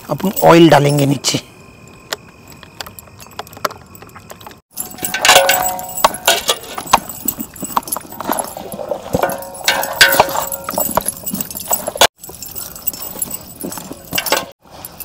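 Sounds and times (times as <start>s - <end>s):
bracelets clinking against metal pot: 2.5s - 15.0s
pot ringing: 4.7s - 14.6s.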